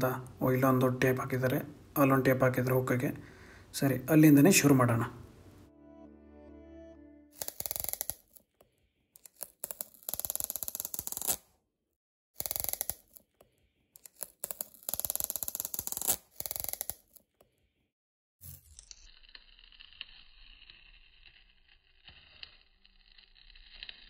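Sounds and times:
tape peeling off cardboard box: 9.2s - 11.5s, 12.4s - 13.3s, 14.0s - 17.2s, 20.8s - 24.0s.

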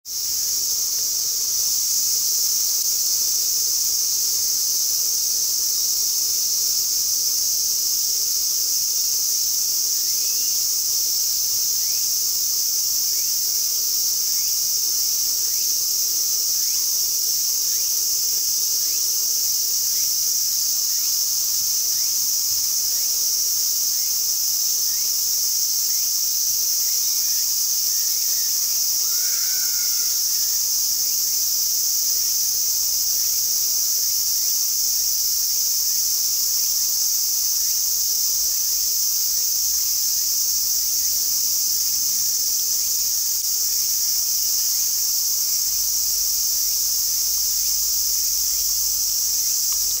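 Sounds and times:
insects droning: 0.1s - 50.0s.

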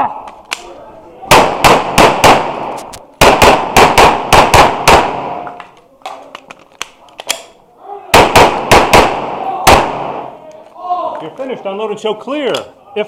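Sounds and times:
pistol shots: 1.3s - 5.6s, 8.1s - 10.4s.

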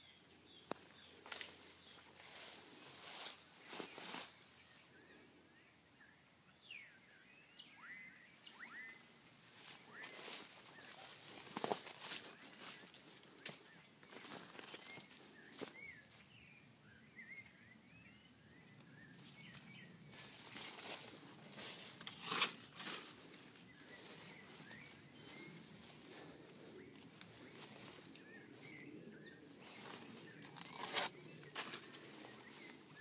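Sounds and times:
high insect tone: 0.0s - 33.0s
small birds chirping: 0.0s - 33.0s
rustling through grass and leaves: 0.5s - 4.8s, 9.4s - 16.6s, 18.8s - 33.0s
dry leaf scraping: 20.1s - 23.3s, 29.6s - 32.8s.

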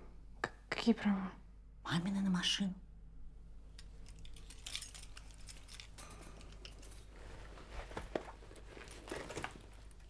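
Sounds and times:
low room hum: 0.0s - 10.0s
handling clicks and rustles: 3.8s - 10.0s.

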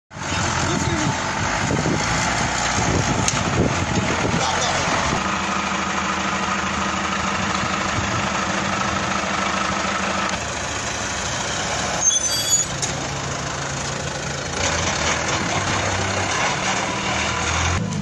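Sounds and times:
truck engine running: 0.1s - 18.0s
short high squeaks: 11.9s - 13.0s.

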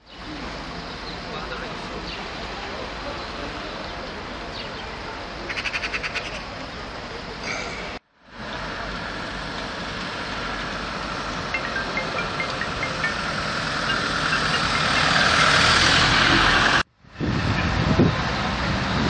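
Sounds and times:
low outdoor background: 0.0s - 19.0s
truck driving past: 8.4s - 19.0s.

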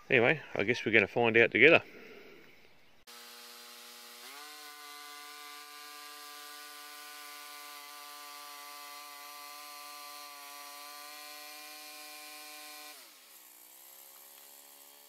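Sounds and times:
bandsaw mill cutting wood: 3.1s - 15.0s.

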